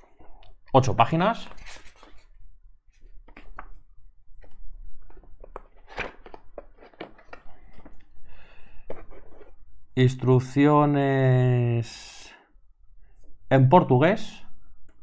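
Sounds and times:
paper leaflets rustling: 1.5 - 8.0.

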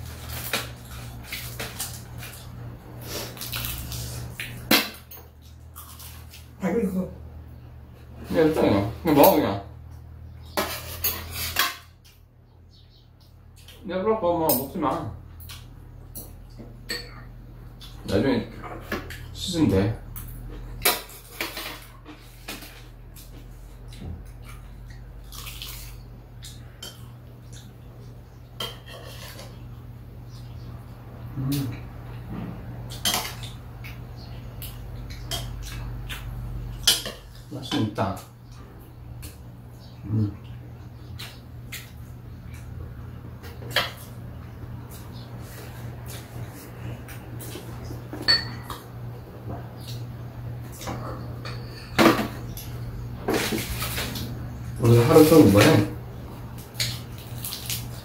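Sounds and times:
low steady hum: 0.0 - 58.0
utensils clinking on metal bowl: 10.6 - 11.9, 48.1 - 48.9
wet chewing: 23.2 - 27.9
metal spoons clinking on a bowl: 48.2 - 48.8.

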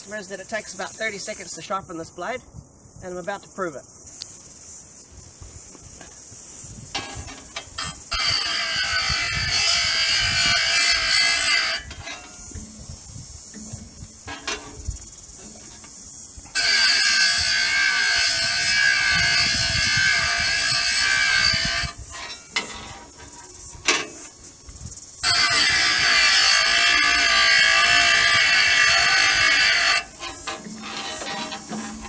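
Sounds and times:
electric blade sharpener whining: 8.1 - 11.9, 16.5 - 22.0, 25.2 - 30.1.

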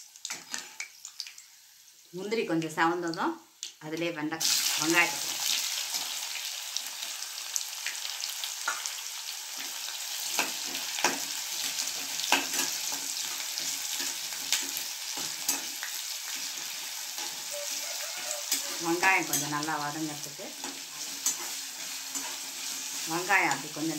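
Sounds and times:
onions sizzling in oil: 0.0 - 23.9
spatula scraping a pan: 10.2 - 19.6, 20.3 - 23.1.

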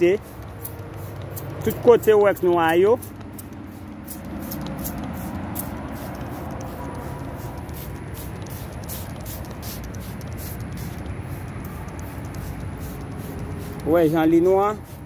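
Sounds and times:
distant road traffic rumble: 0.0 - 15.0
high-pitched ticks: 0.0 - 15.0.

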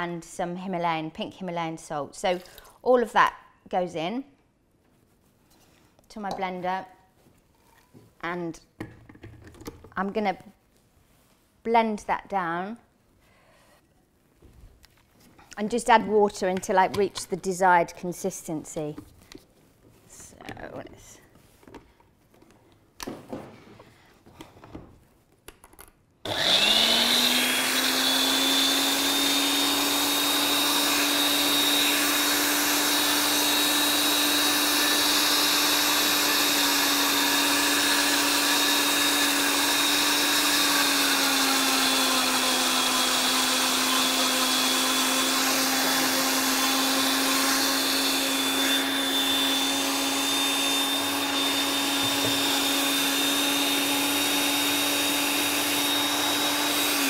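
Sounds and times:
blender motor whining: 26.2 - 57.0.

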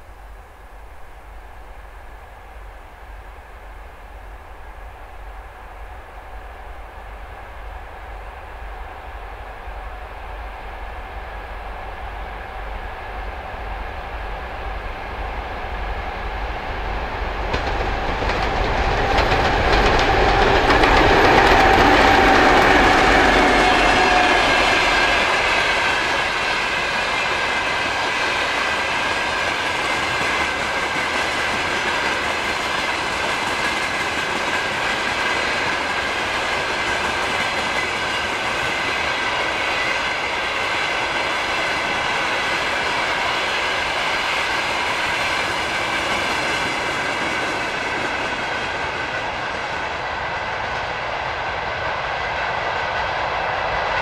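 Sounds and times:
train wheels clacking on rails: 17.0 - 54.0.

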